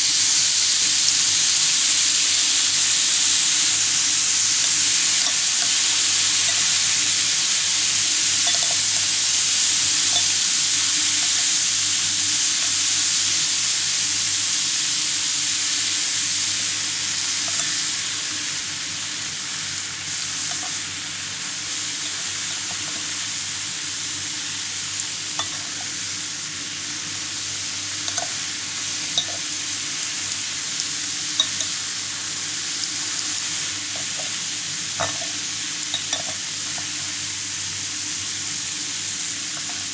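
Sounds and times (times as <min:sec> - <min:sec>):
beef sizzling on grill: 0:00.0 - 0:39.9
metal tongs clicking on grill: 0:05.2 - 0:06.8, 0:08.4 - 0:09.0, 0:09.9 - 0:11.3, 0:30.3 - 0:31.8.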